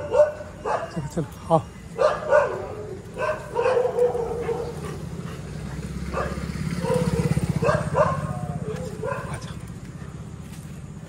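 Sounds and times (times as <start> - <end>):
dog bark-howl: 0.0 - 1.0, 2.0 - 4.8, 6.1 - 9.4
dogs barking: 0.0 - 1.2, 1.9 - 9.7.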